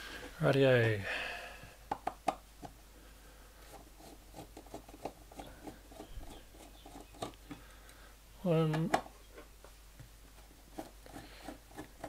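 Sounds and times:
screw ticking and scraping: 0:03.7 - 0:07.7, 0:10.7 - 0:12.0.

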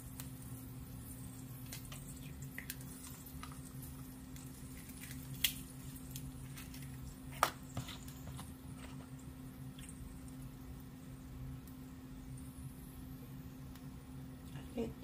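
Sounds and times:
steady low hum: 0:00.0 - 0:15.0
eggshell cracking: 0:01.3 - 0:10.5.

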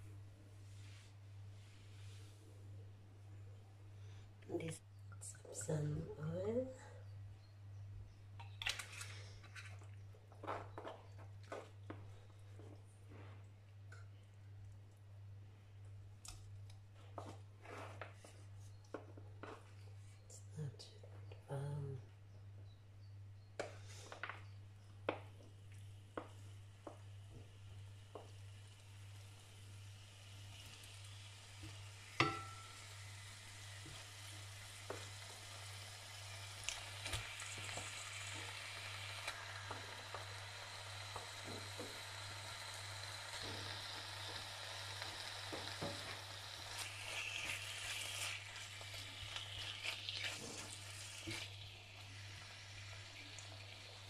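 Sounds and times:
low steady hum: 0:00.0 - 0:54.0
chicken sizzling in a frying pan: 0:26.2 - 0:54.0.

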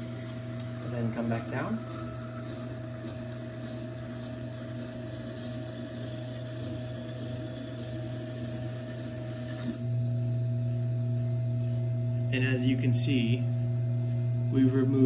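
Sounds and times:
grinder motor humming: 0:00.0 - 0:15.0.

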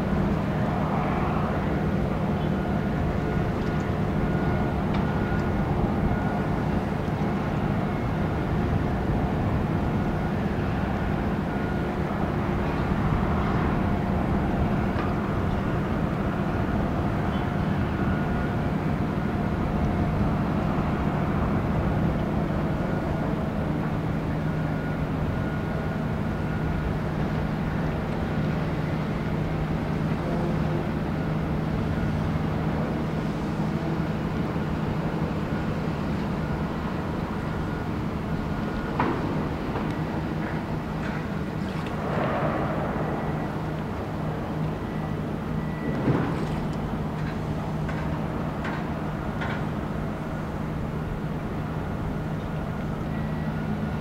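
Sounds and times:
wind rumble: 0:00.0 - 0:17.3, 0:36.4 - 0:53.0
boat engine droning: 0:00.0 - 0:54.0.

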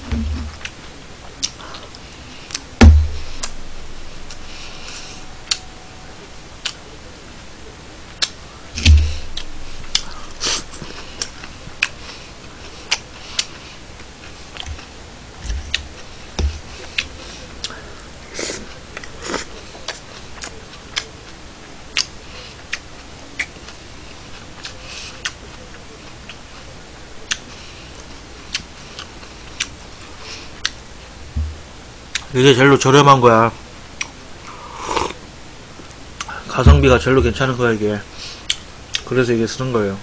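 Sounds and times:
dull thump: 0:02.8 - 0:04.5, 0:08.8 - 0:10.4, 0:16.4 - 0:16.7, 0:31.3 - 0:31.7, 0:36.6 - 0:37.4
chewing: 0:09.4 - 0:30.8.

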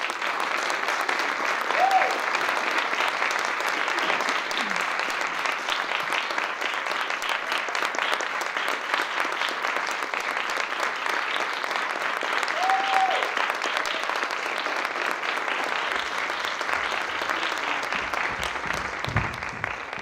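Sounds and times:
audience applauding: 0:00.0 - 0:20.0
falling cry from crowd: 0:12.5 - 0:13.4.

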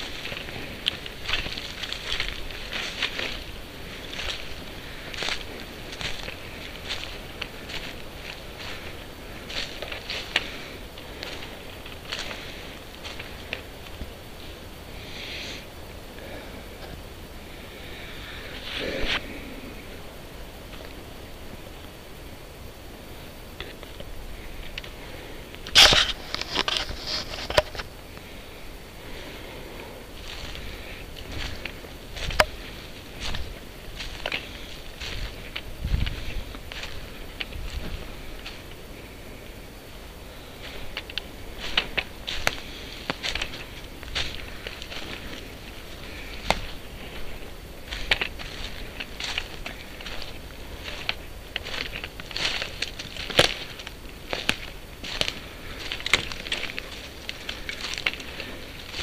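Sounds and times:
twigs snapping: 0:00.0 - 0:14.1, 0:40.6 - 0:59.0
crackling and rustling undergrowth: 0:00.0 - 0:59.0
faint steady hiss: 0:00.0 - 0:59.0
footsteps on dry needles and twigs: 0:00.0 - 0:59.0.

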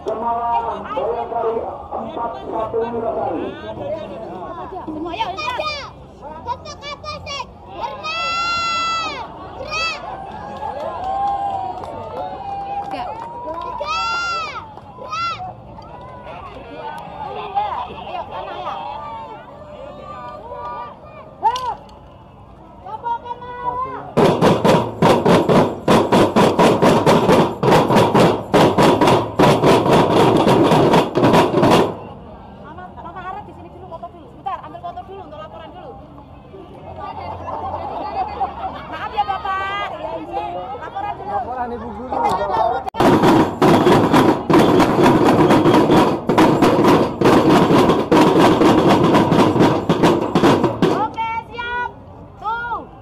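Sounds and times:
loud fast drumming: 0:24.2 - 0:32.1, 0:43.0 - 0:51.2.

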